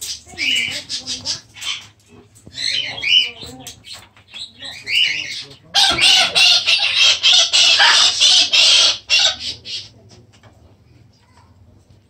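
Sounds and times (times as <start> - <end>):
macaw squawking: 4.3 - 9.9.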